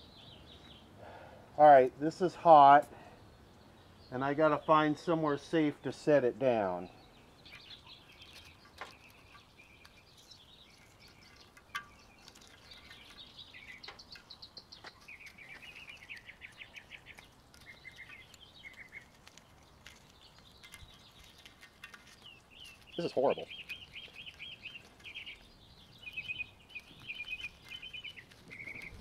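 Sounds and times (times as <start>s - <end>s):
faint birds chirping: 0.0s - 29.0s.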